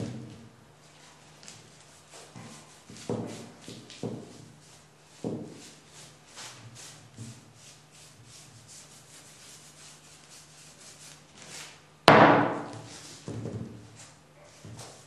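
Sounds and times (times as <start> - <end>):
brush scrubbing cane seat: 1.0 - 11.8
loud wooden knock: 12.1 - 12.9.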